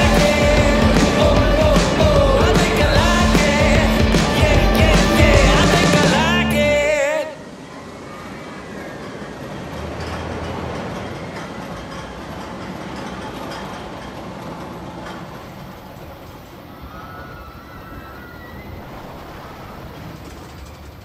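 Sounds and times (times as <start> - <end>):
music: 0.0 - 7.1
outdoor rushing rumble: 18.6 - 21.0.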